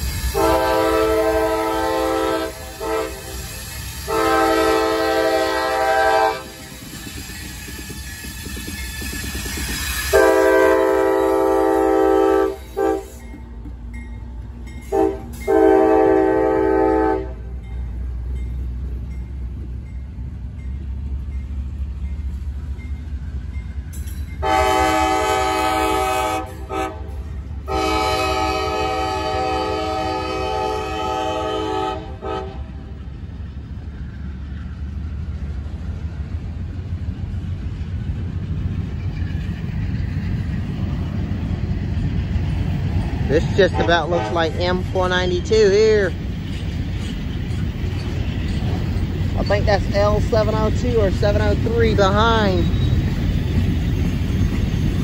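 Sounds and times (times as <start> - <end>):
diesel locomotive horn blasts: 0.0 - 6.7, 10.0 - 13.4, 14.8 - 17.7, 24.4 - 33.0, 43.3 - 45.5
freight train cars rolling past: 0.0 - 55.0.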